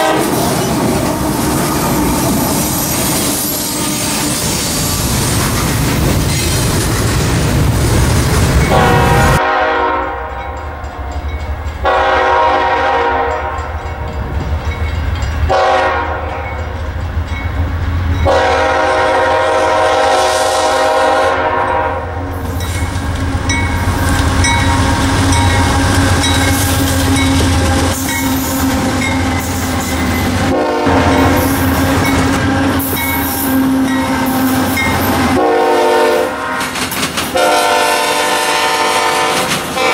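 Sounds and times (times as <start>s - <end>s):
locomotive air horn blasts: 0.0s - 0.4s, 8.7s - 10.8s, 11.8s - 13.8s, 15.5s - 16.5s, 18.2s - 22.4s, 30.4s - 39.9s
train wheels clattering over rails: 0.0s - 9.3s, 22.4s - 39.9s.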